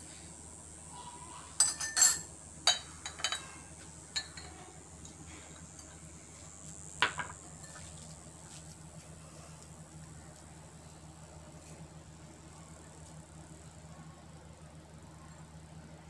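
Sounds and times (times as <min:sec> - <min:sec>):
spoon clinking glass bowls: 0:01.6 - 0:03.4, 0:04.2 - 0:04.5.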